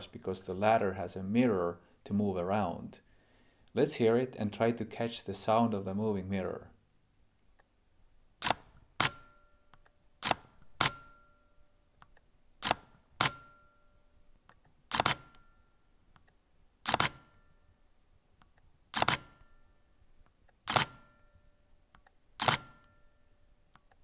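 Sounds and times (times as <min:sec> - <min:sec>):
camera shutter clacks: 0:08.4 - 0:09.4, 0:10.2 - 0:11.2, 0:12.6 - 0:13.6, 0:14.9 - 0:15.5, 0:16.8 - 0:17.4, 0:18.9 - 0:19.5, 0:20.7 - 0:21.2, 0:22.4 - 0:23.0.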